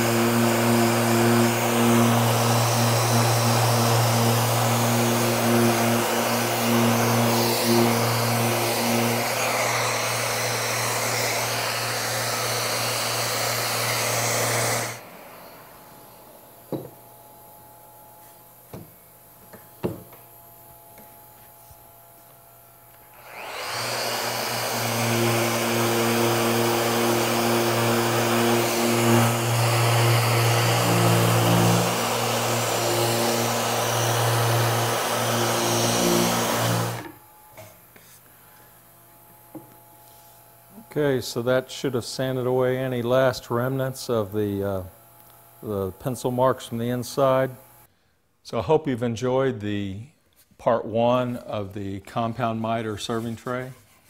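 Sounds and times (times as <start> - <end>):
orbital sander whirring: 0.0 - 38.2.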